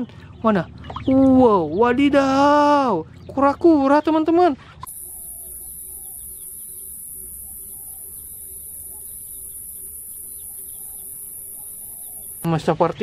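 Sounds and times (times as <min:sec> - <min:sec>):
faint short chirps: 0:04.8 - 0:12.5
high-pitched hiss: 0:04.9 - 0:12.5.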